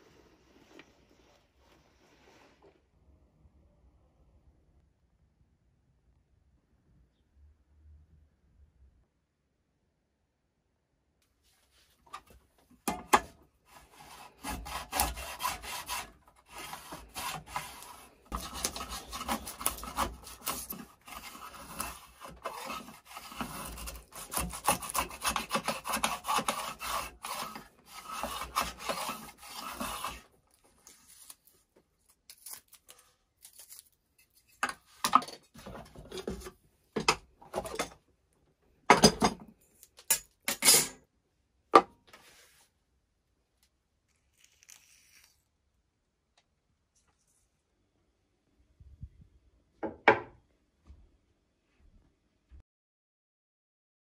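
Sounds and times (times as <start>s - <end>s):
hand plane rasping wood: 13.7s - 30.3s.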